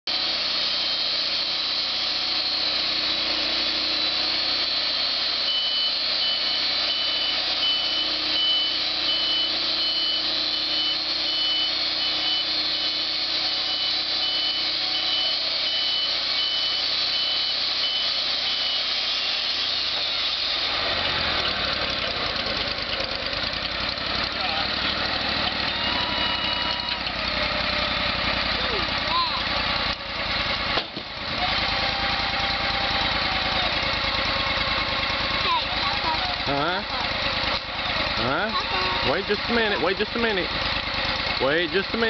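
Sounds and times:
high pulsing tone: 0:00.1 - 0:20.9, 0:37.9 - 0:40.5
band sawmill cutting log: 0:00.1 - 0:42.0.

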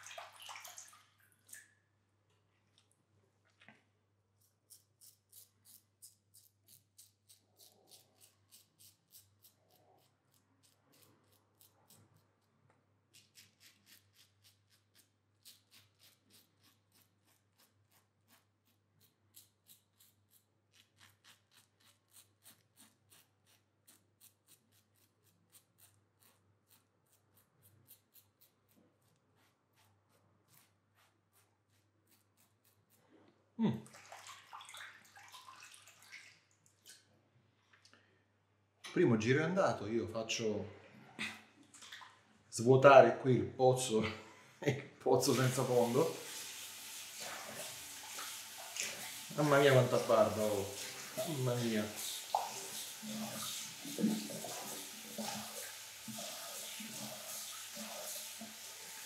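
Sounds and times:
water splashing in sink: 0:00.0 - 0:01.8, 0:33.8 - 0:37.1, 0:41.6 - 0:42.2, 0:45.2 - 0:59.0
razor scraping stubble: 0:04.4 - 0:12.2, 0:13.2 - 0:33.0.

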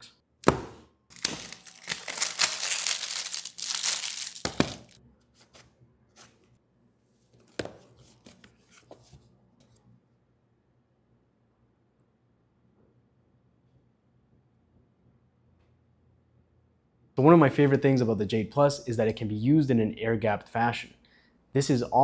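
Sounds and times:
packaging tearing and crinkling: 0:01.1 - 0:05.0.

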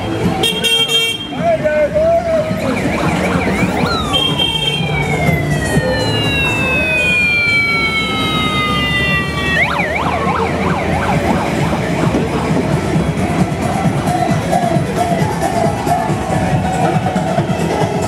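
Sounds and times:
motorcycle engines rumbling: 0:00.0 - 0:18.0
electronic siren wailing: 0:02.5 - 0:12.6.

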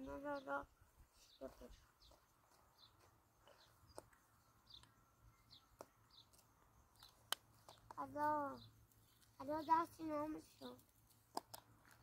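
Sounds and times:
small birds chirping: 0:00.0 - 0:12.0
sharp clicks: 0:05.7 - 0:08.0.

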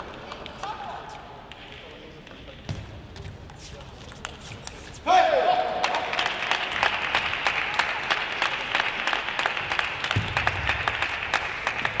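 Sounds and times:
crowd applauding: 0:05.7 - 0:12.0.

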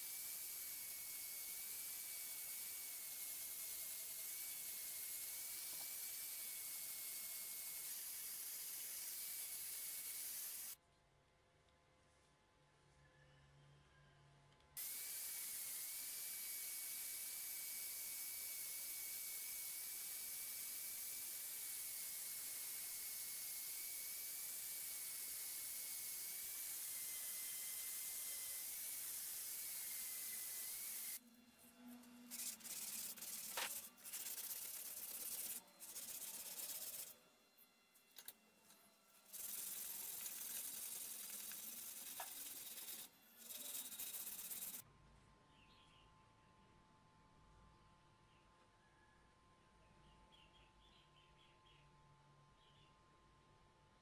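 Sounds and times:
power tool sanding steel: 0:14.8 - 0:31.2, 0:32.2 - 0:37.2, 0:38.6 - 0:44.8.

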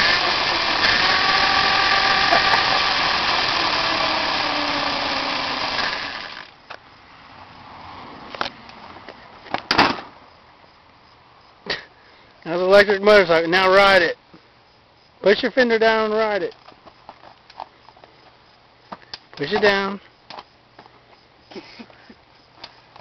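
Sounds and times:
electric motor and chain whirring: 0:00.0 - 0:06.6.

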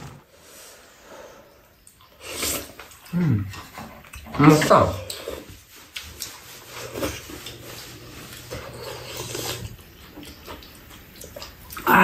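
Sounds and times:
person slurping stew: 0:00.0 - 0:01.0, 0:06.6 - 0:09.8.

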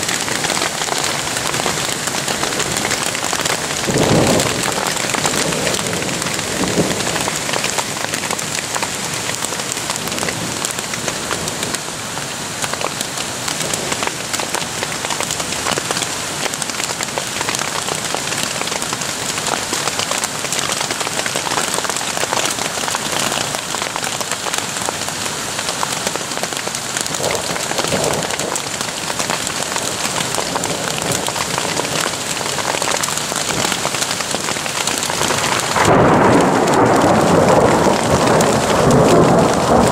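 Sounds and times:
hail falling on tent fabric: 0:00.0 - 0:39.9.

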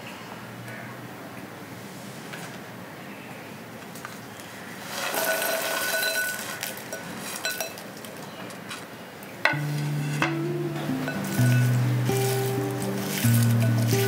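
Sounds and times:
corn kernels rattling into glass bowl: 0:05.0 - 0:07.8, 0:11.1 - 0:14.0
kernels clinking against glass: 0:05.1 - 0:07.8, 0:11.0 - 0:14.0.

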